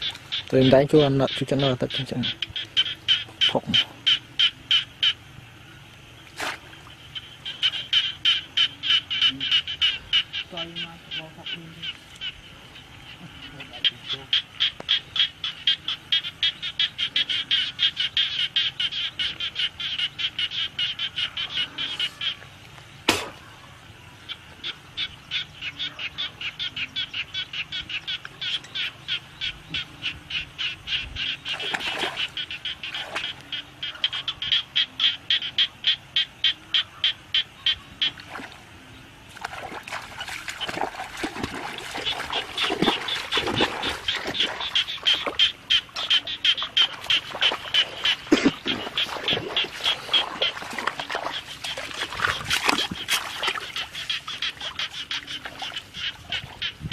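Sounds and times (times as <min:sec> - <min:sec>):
frogs croaking: 0:00.0 - 0:56.9
hands splashing in muddy water: 0:39.3 - 0:45.4, 0:46.8 - 0:55.8.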